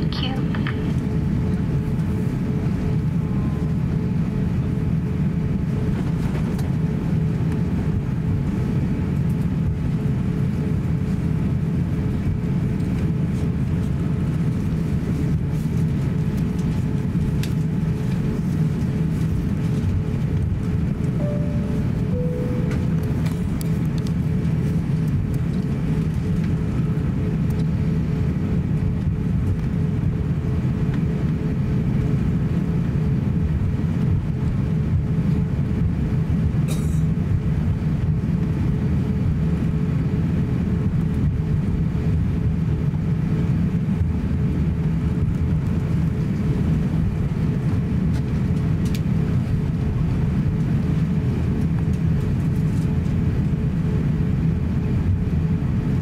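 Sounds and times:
faint hum: 0.0 - 31.3
aircraft cabin low rumble: 0.0 - 56.0
short click: 22.6 - 23.4.

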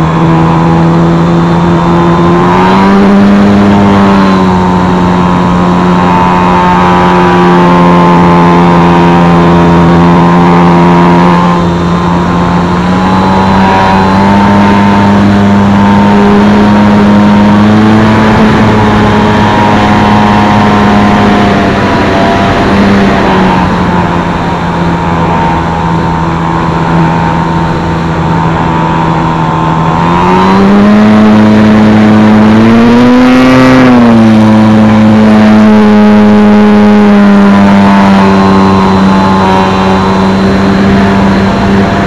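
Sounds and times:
electric propeller buzzing whine: 0.0 - 42.0
rush of air: 17.3 - 33.4.

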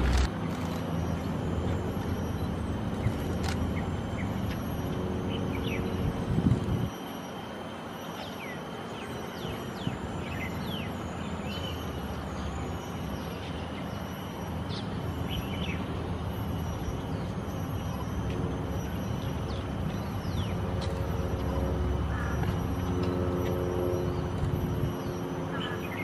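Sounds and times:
distant traffic rumble: 0.0 - 5.2.

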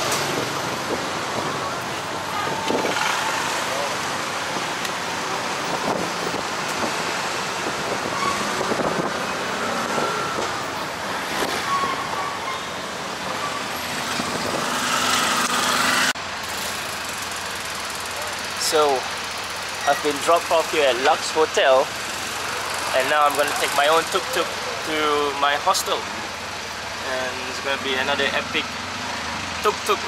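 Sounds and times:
city traffic: 0.0 - 30.0
tuk-tuk engine: 0.0 - 30.0.

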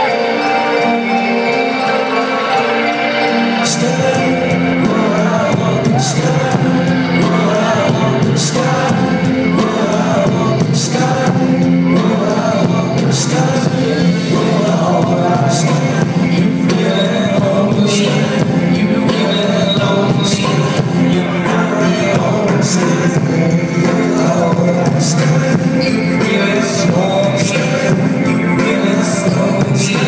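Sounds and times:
crowd noise: 0.0 - 30.0
live band playing: 0.0 - 30.0
person singing: 0.0 - 30.0.

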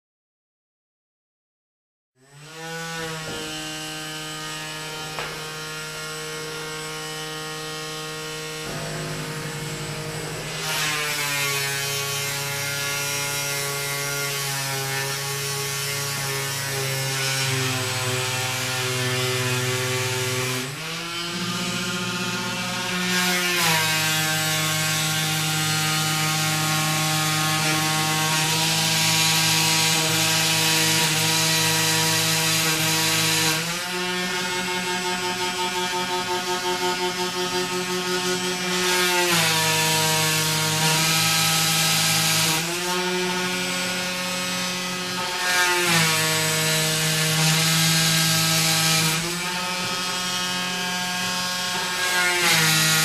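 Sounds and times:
cnc machine motor whine: 2.8 - 28.8
hissing noise: 8.6 - 13.0.

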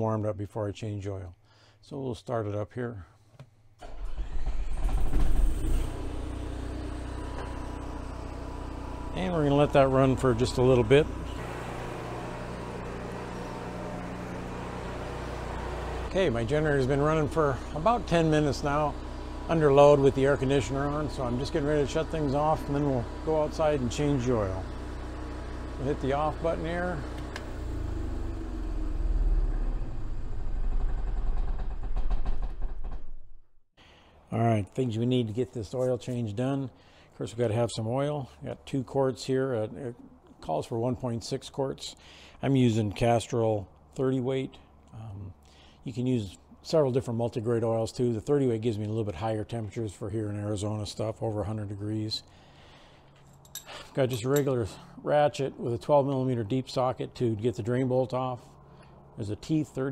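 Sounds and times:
generator running: 3.8 - 32.6.

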